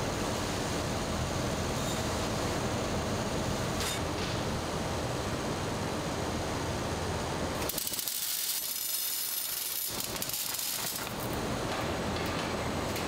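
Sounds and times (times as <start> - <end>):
conveyor machinery running: 0.0 - 13.0.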